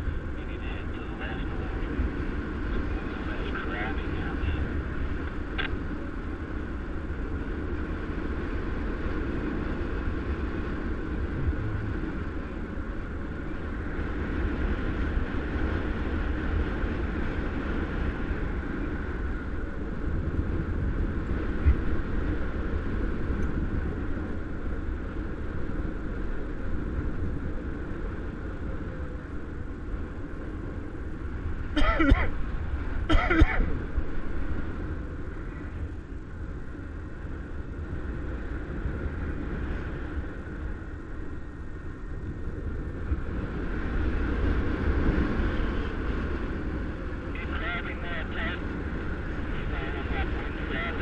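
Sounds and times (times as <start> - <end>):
wind rushing over microphone: 0.0 - 51.0.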